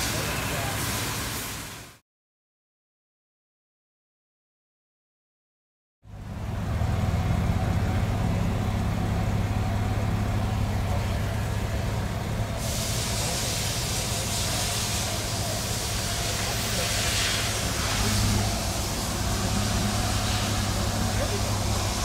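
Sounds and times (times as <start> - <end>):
steady hiss: 12.5 - 22.0.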